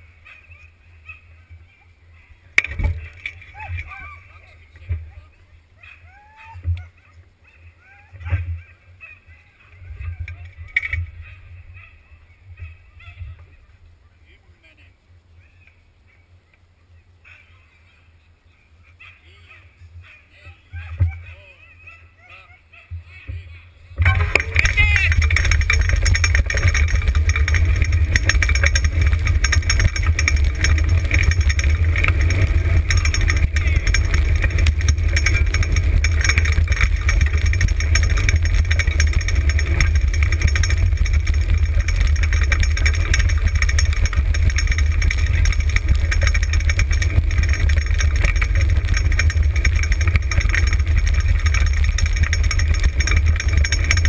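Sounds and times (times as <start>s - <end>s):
cart wheels rattling rumble: 0.0s - 6.8s, 9.6s - 13.5s, 24.0s - 54.0s
wind buffeting microphone: 24.0s - 54.0s.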